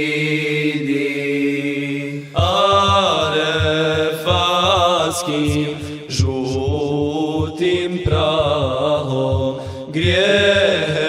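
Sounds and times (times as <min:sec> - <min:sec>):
backing voices singing: 0:00.0 - 0:11.0
solo voice singing: 0:00.0 - 0:11.0
pulsing low beat: 0:02.4 - 0:11.0.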